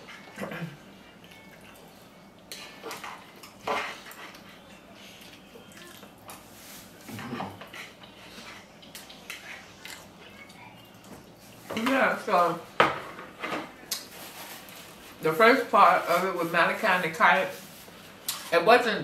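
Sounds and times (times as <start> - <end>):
cutlery and dishes clinking: 2.5 - 4.4.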